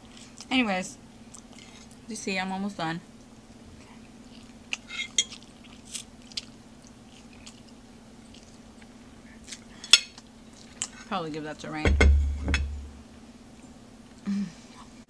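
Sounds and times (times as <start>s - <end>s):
chewing and crunching: 0.0s - 0.5s, 1.2s - 2.1s, 3.5s - 11.1s
faint steady hum: 0.0s - 15.0s.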